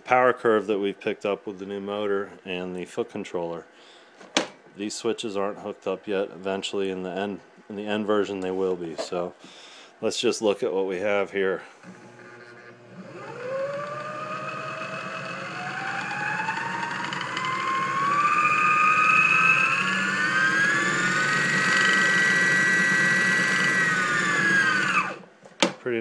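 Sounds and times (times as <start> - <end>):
electric motor whine: 11.8 - 25.3.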